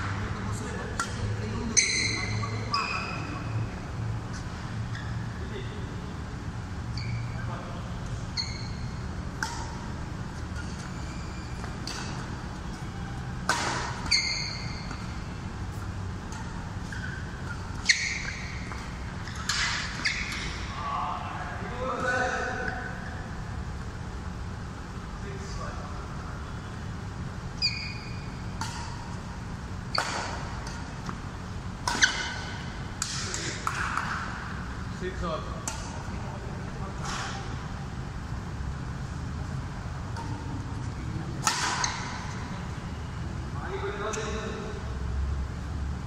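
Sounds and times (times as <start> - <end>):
steady low hum: 0.0 - 46.0
racket hitting shuttlecock: 0.9 - 3.5, 8.4 - 20.8, 28.0 - 34.6, 35.6 - 36.3, 40.1 - 42.7
shoes squeaking on court: 1.1 - 5.5, 6.8 - 20.8, 27.4 - 33.8, 40.2 - 43.2.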